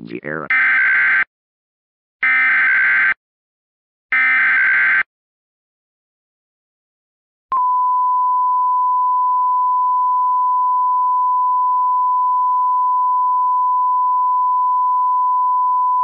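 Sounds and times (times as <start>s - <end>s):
steady emergency alert tone: 0.5s - 1.3s, 2.2s - 3.2s, 4.1s - 5.1s.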